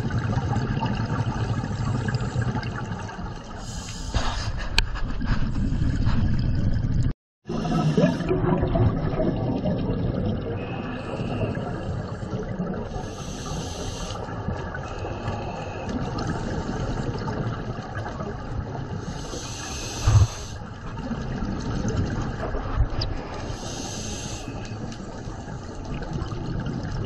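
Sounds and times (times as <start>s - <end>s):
underwater bubbles and water rush: 0.0s - 27.0s
hissing regulator breaths: 3.6s - 4.6s, 10.6s - 14.3s, 19.0s - 20.7s, 23.4s - 24.8s.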